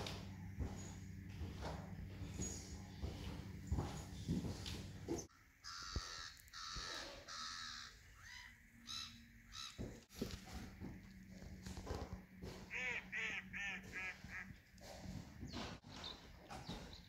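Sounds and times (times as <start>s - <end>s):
birds cawing: 5.3s - 9.9s, 12.4s - 14.6s.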